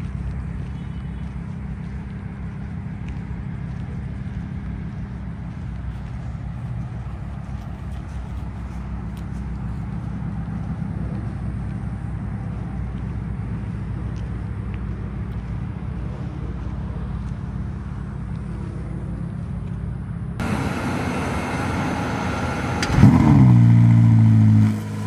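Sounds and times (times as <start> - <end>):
sports car engine idling: 0.0 - 25.0.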